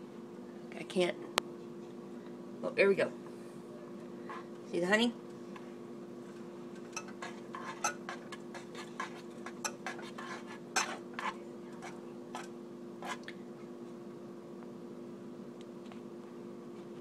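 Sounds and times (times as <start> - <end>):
steady low hum: 0.0 - 17.0
utensil scraping a saucepan: 6.9 - 13.3.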